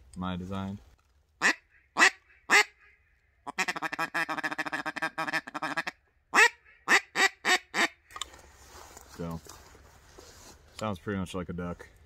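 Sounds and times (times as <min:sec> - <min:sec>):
duck call notes: 0:01.4 - 0:08.0
duck call quack: 0:01.4 - 0:08.0.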